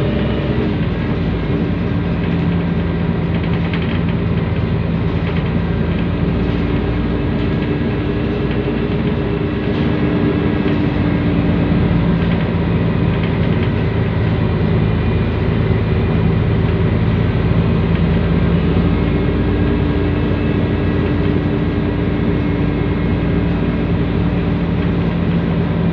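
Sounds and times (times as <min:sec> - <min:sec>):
bus diesel engine running: 0:00.0 - 0:25.9
road noise: 0:00.0 - 0:25.9
turbocharger whine: 0:00.0 - 0:25.9.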